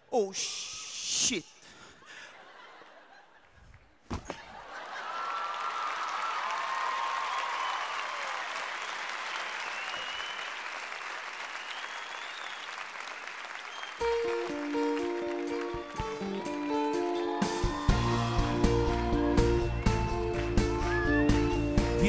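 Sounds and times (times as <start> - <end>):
thump: 4.1 - 4.4
audience applause: 4.5 - 22.0
whistles and cheers: 5.1 - 10.8, 11.4 - 14.3, 15.6 - 22.0.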